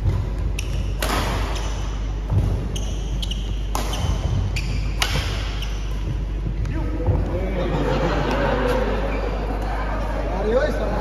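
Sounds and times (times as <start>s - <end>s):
rackets hitting shuttlecock: 0.0s - 7.2s.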